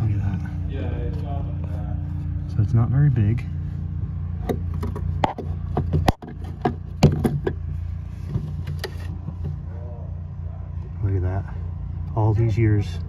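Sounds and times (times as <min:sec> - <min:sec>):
steady low hum: 0:00.0 - 0:13.0
clicks knocks and scrapes on metal box: 0:04.4 - 0:09.6.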